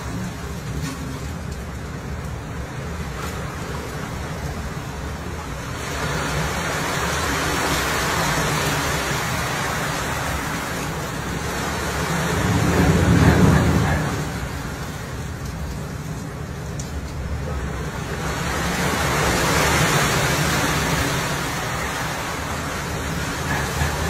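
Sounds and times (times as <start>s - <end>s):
low wind rumble: 0.0s - 24.0s
sea water washing over deck: 0.0s - 24.0s
waves rushing along hull: 0.0s - 24.0s.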